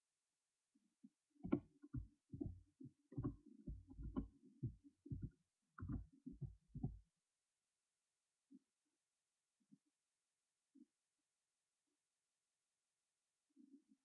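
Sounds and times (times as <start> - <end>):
muffled thumps and bumps: 1.4 - 7.0.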